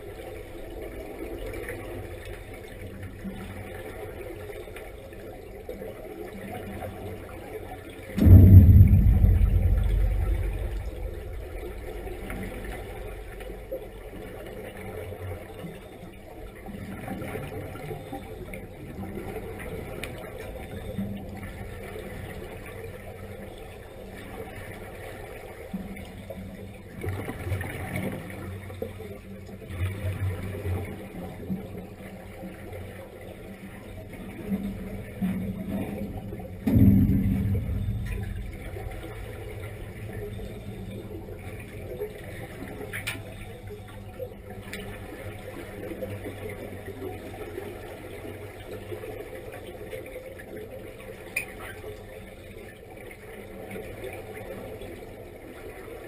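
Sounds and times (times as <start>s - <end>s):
air bubbling underwater: 8.2s - 14.1s, 36.6s - 43.0s.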